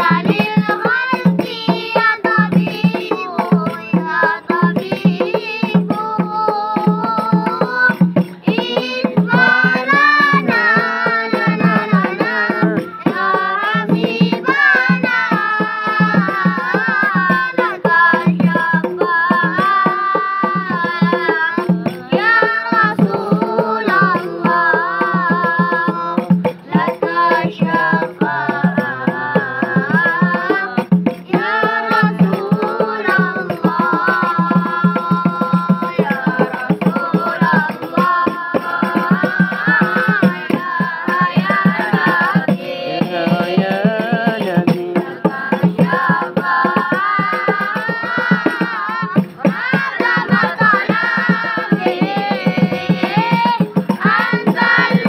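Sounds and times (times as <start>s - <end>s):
boys singing devotional song: 0.0s - 55.0s
frame drum beat: 0.0s - 55.0s.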